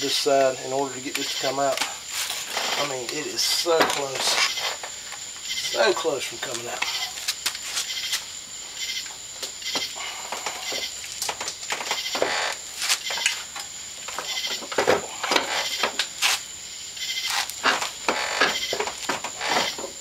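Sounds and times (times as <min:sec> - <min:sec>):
metal clunks and scrapes: 0:09.6 - 0:16.1.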